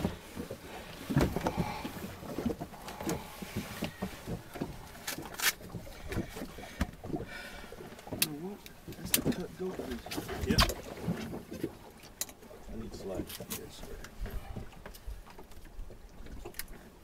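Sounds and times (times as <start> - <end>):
knocks and bumps on a boat: 0.0 - 5.0.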